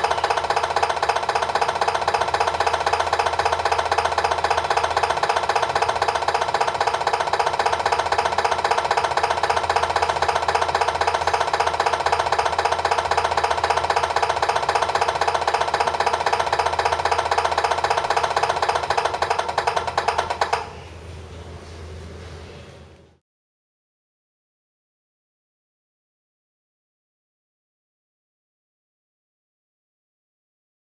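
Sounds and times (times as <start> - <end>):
simulated diesel idle through speaker: 0.0 - 20.8.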